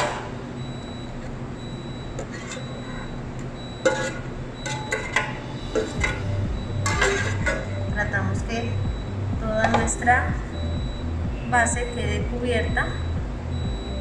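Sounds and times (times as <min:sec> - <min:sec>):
steady low hum: 0:00.0 - 0:14.0
metal pan knocking on mould: 0:09.6 - 0:10.0.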